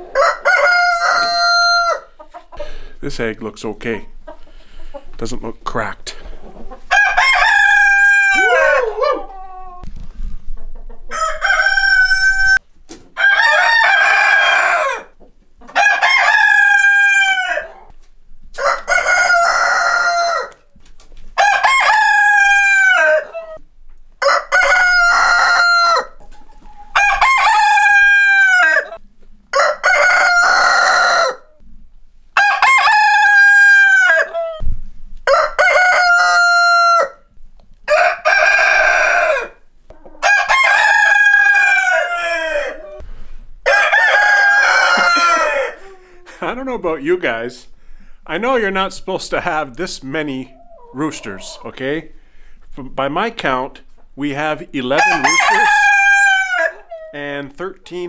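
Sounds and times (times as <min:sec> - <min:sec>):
roosters crowing: 0:00.0 - 0:02.6, 0:06.8 - 0:09.8, 0:11.1 - 0:12.6, 0:13.2 - 0:17.9, 0:18.5 - 0:20.7, 0:21.4 - 0:23.6, 0:24.2 - 0:31.6, 0:32.4 - 0:34.6, 0:35.2 - 0:46.5, 0:54.9 - 0:57.2
hens clucking: 0:00.0 - 0:03.0, 0:03.9 - 0:09.9, 0:24.2 - 0:31.8, 0:37.6 - 0:43.1, 0:43.7 - 0:47.4, 0:49.4 - 0:52.7, 0:54.9 - 0:57.3.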